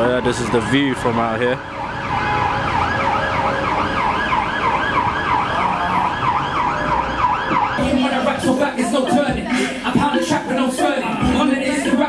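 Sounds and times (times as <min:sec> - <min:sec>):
siren in fast yelp mode: 0:00.0 - 0:07.8
street traffic: 0:00.0 - 0:12.0.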